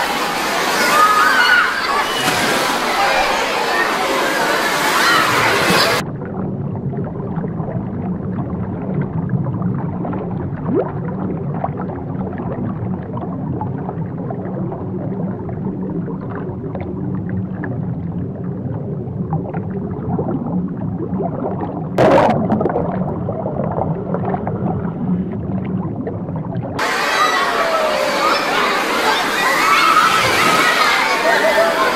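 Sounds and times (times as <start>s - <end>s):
water splash: 0.0s - 6.0s, 21.4s - 25.1s
underwater wash of water and bubbles: 0.0s - 31.9s.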